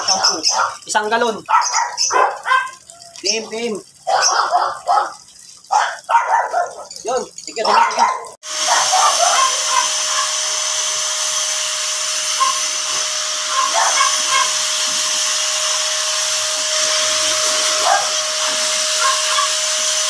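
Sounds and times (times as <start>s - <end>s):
blow dryer blasting air: 8.4s - 20.0s.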